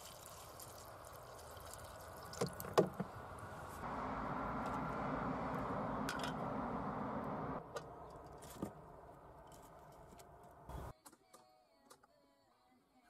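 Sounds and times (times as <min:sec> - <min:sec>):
pot boiling and bubbling: 0:00.0 - 0:02.8.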